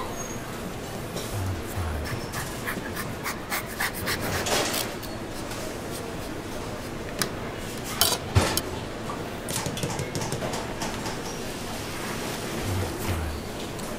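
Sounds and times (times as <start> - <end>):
grater rasping: 1.8 - 5.0.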